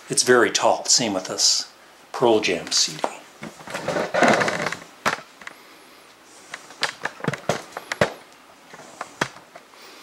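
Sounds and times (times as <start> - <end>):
rustle of handling cases: 2.6 - 5.6, 6.4 - 9.7.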